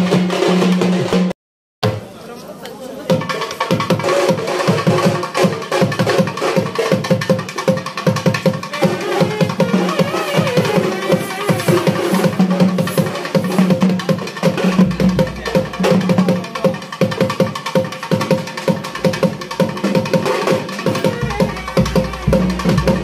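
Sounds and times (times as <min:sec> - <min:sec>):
fast festival drumming: 0:00.0 - 0:02.2, 0:03.1 - 0:23.0
held note: 0:20.9 - 0:23.0.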